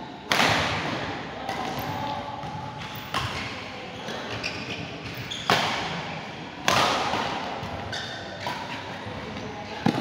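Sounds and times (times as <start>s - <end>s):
racket hitting shuttlecock: 0.3s - 3.4s, 5.0s - 6.0s, 6.6s - 8.9s
shoes squeaking on court: 2.8s - 5.7s, 7.9s - 8.8s.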